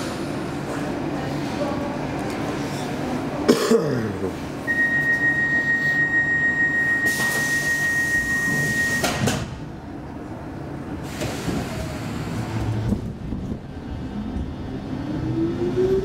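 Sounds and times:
subway doors thudding shut: 6.2s - 9.8s, 10.9s - 14.5s.

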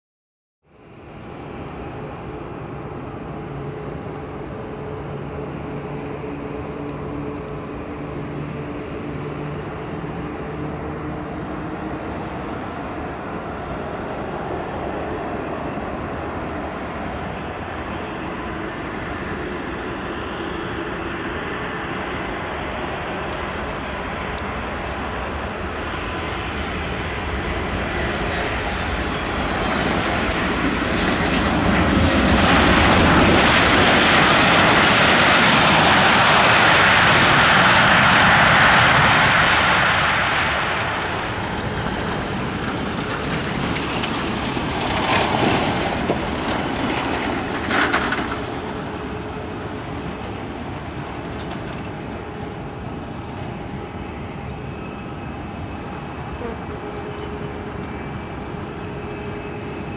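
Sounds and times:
jet engines on landing: 0.7s - 59.9s
reverse thrust roar: 32.6s - 50.2s.

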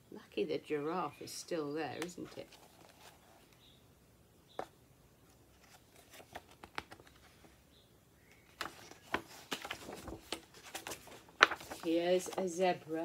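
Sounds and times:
book pages rustling: 1.9s - 3.7s, 4.5s - 7.6s, 8.3s - 13.0s.

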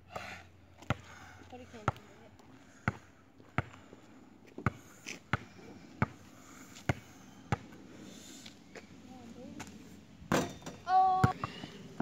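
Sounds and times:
basketball bouncing on asphalt: 0.1s - 7.8s, 9.6s - 11.8s.

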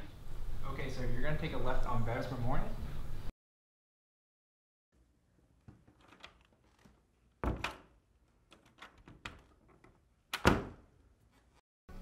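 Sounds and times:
heavy door thuds: 7.4s - 7.8s, 10.4s - 10.8s.

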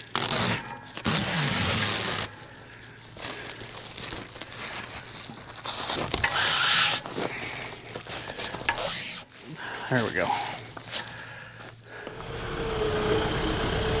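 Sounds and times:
plastic film crinkling and tearing: 0.0s - 11.2s.

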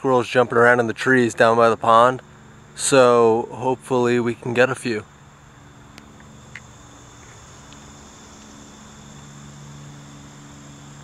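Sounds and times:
faint low hum: 0.0s - 11.0s
insects chirring: 0.0s - 11.0s
faint ticks: 5.8s - 9.4s.

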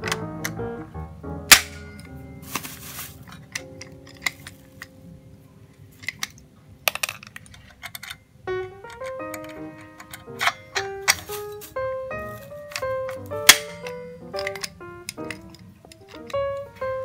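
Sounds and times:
background music with held notes: 0.0s - 5.8s, 8.5s - 17.0s
clicks and knocks on metal parts: 6.0s - 8.3s, 8.9s - 11.8s, 12.4s - 16.9s.

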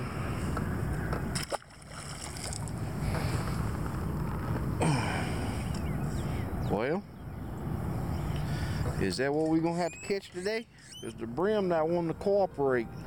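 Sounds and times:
wind rumbling on microphone: 0.0s - 10.1s
water lapping at boat: 0.1s - 4.7s
fish splashing into water: 1.3s - 2.8s.

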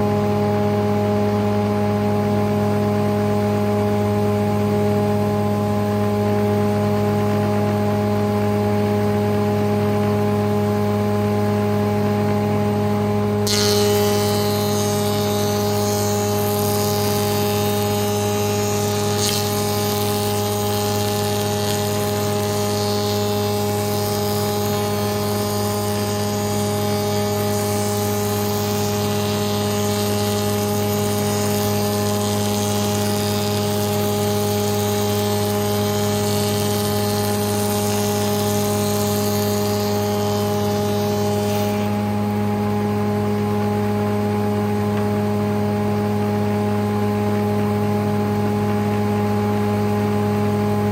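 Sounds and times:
machine motor hum: 0.0s - 50.9s
cutter hissing through wood: 13.4s - 42.6s.

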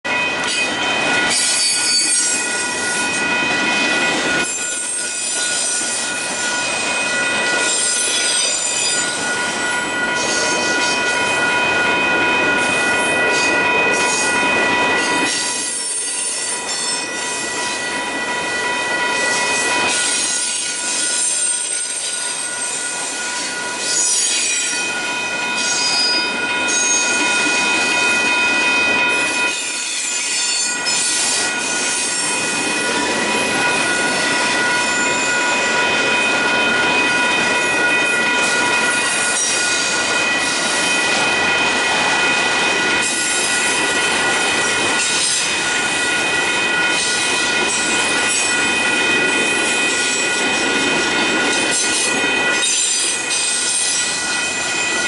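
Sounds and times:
crossing signal bell ringing: 0.0s - 55.0s
freight train rolling past: 0.0s - 55.0s
steel wheels squealing on rails: 0.1s - 55.0s.

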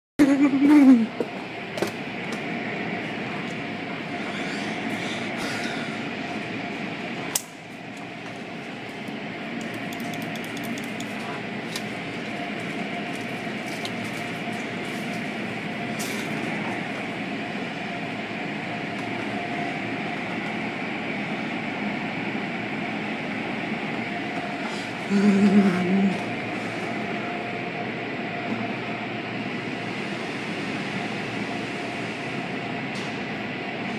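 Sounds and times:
faint machinery hum: 0.2s - 33.9s.

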